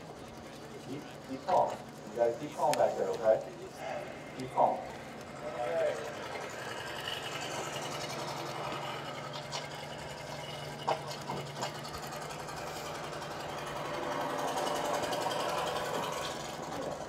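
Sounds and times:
sharp metallic clicks: 0:00.0 - 0:03.6
small engine running: 0:00.0 - 0:17.0.

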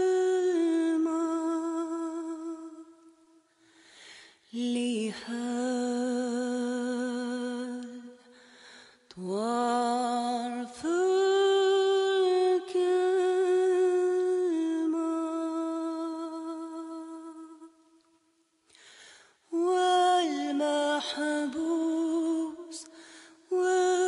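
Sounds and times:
person singing unaccompanied: 0:00.0 - 0:03.0, 0:19.5 - 0:22.9.

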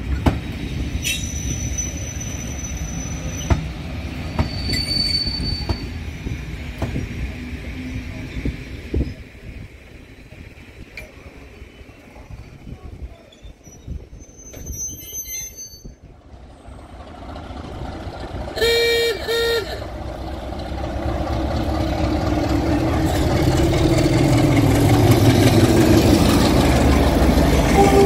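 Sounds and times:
diesel engine approaching: 0:16.1 - 0:28.0
locomotive horn blasts: 0:18.6 - 0:20.0, 0:27.7 - 0:28.0.

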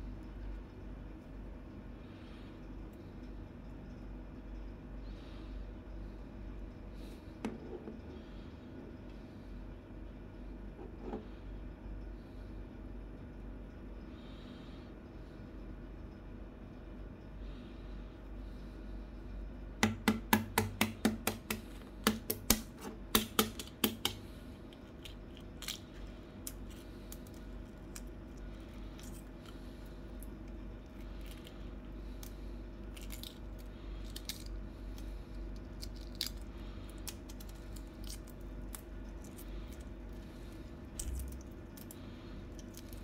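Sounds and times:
egg shell tapping: 0:19.8 - 0:28.4
egg shell crackling: 0:20.4 - 0:43.0.

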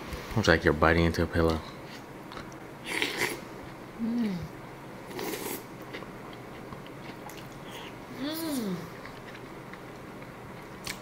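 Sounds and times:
person humming mmm: 0:04.0 - 0:04.5.

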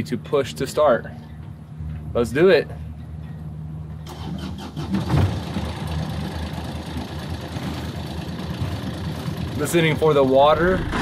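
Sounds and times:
diesel engine idling: 0:04.0 - 0:11.0
starter motor cranking: 0:04.1 - 0:06.0.

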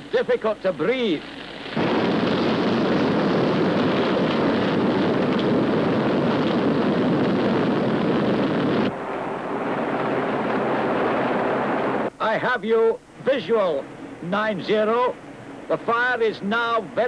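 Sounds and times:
explosion heavy roar: 0:01.8 - 0:12.1.

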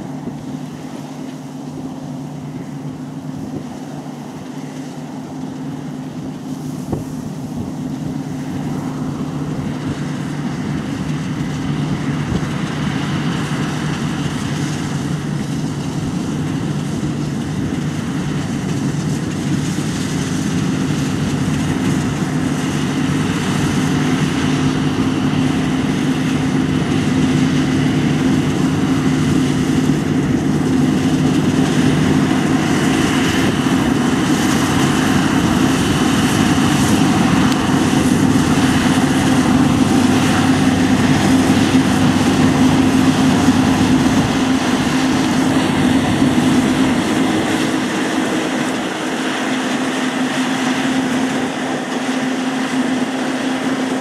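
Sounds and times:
combine harvester running: 0:00.0 - 0:54.0.

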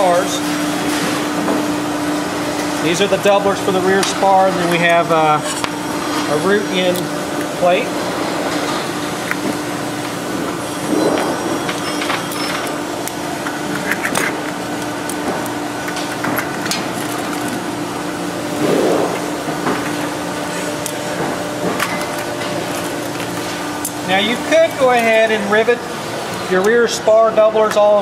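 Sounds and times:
steady background hum: 0:00.0 - 0:28.0.

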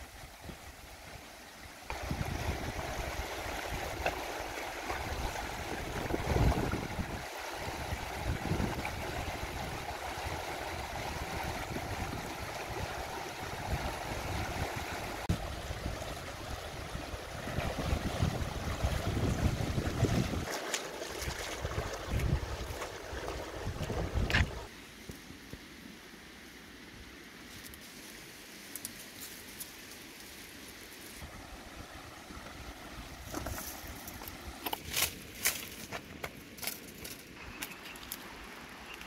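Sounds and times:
river rushing over stones: 0:00.0 - 0:24.9
person wading through water: 0:17.4 - 0:24.7.

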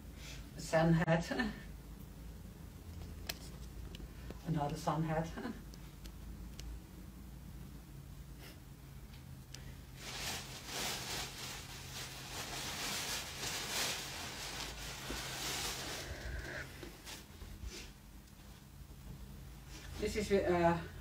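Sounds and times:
plastic bag rustling: 0:09.8 - 0:17.4
clothes being rummaged: 0:09.9 - 0:17.4.

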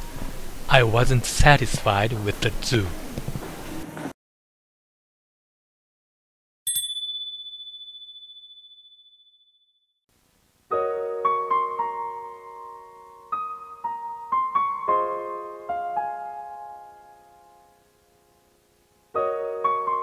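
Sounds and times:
high ding: 0:06.7 - 0:09.7
gentle piano tune: 0:10.7 - 0:20.0.

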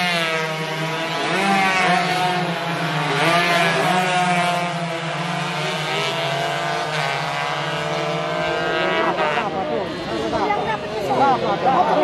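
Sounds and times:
racing motorcycle engines revving: 0:00.0 - 0:12.0.

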